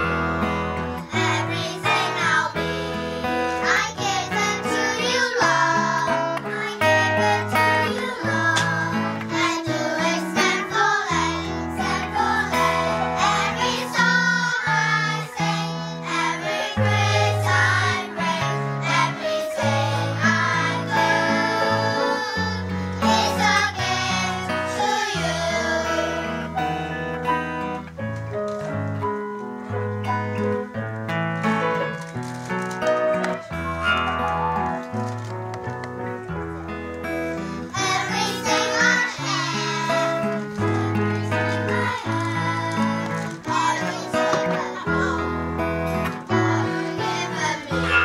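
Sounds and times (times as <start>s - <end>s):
piano: 0.0s - 48.0s
children's choir singing: 1.0s - 26.7s, 37.5s - 48.0s.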